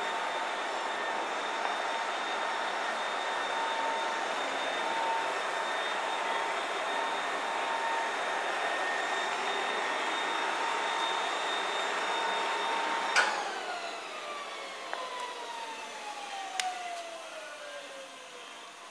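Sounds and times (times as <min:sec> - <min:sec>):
floor burnisher whining: 0:00.0 - 0:18.9.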